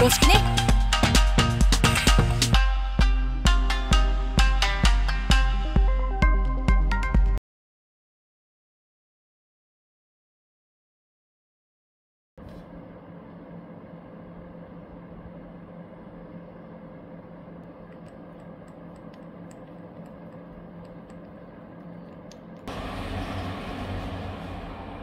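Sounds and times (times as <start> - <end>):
steady low hum: 12.4 - 25.0
rough loud hum: 22.6 - 25.0.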